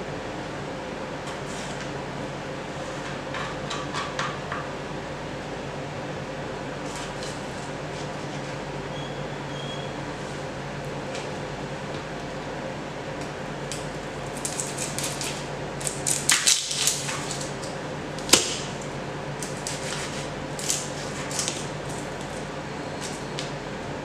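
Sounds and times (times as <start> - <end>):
knife cutting onion: 19.4 - 22.4.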